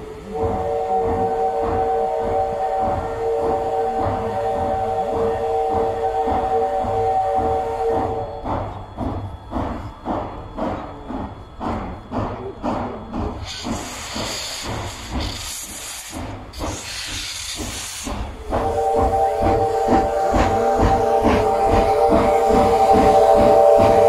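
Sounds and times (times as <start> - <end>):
steam whistle chord: 0.0 - 8.4, 18.4 - 24.0
steam hissing: 0.0 - 24.0
steam locomotive exhaust chuffing: 0.0 - 24.0.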